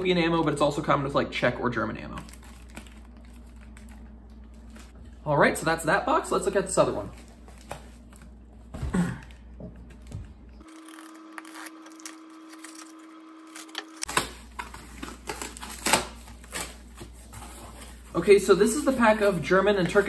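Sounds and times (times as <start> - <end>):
packing tape torn open: 2.2 - 4.9, 10.6 - 17.1.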